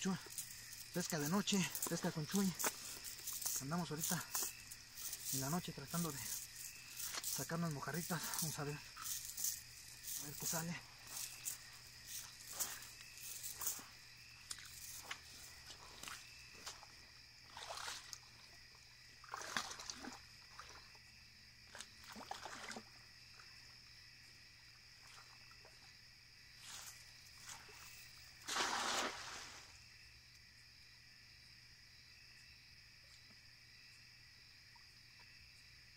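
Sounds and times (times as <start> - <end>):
water sloshing and splashing: 0.0 - 23.6, 26.6 - 29.8
insects trilling: 0.0 - 35.9.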